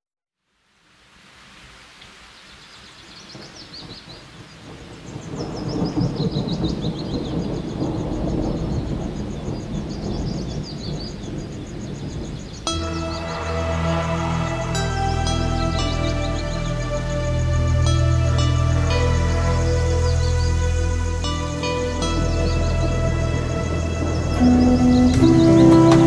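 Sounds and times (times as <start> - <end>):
birds chirping: 2.2 - 26.0
steady low rumble: 8.1 - 26.0.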